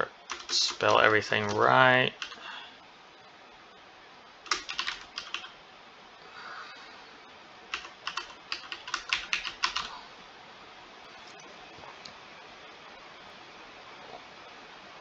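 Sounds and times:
typing on keyboard: 0:00.3 - 0:02.4, 0:04.5 - 0:05.6, 0:07.7 - 0:09.9.

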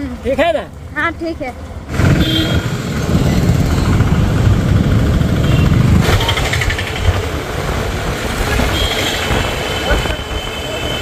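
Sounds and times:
motor scooter engine: 0:01.9 - 0:08.1.

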